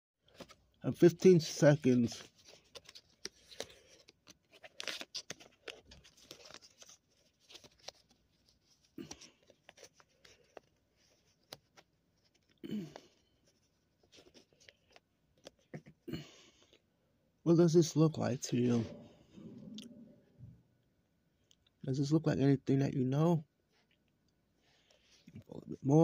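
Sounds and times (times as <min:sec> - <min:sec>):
paper banknote crinkling: 0:01.2 - 0:15.9.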